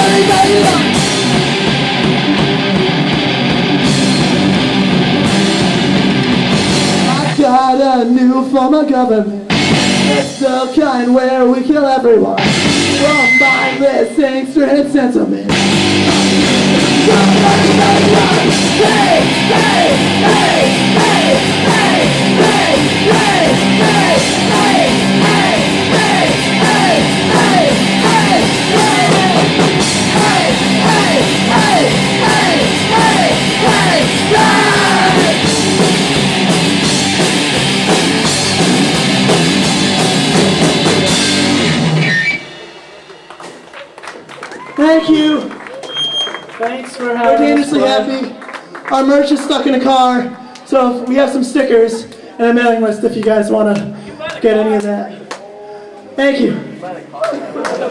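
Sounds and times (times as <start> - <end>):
live rock band playing: 0.0 - 7.8, 9.5 - 10.5, 12.2 - 14.2, 15.4 - 46.6.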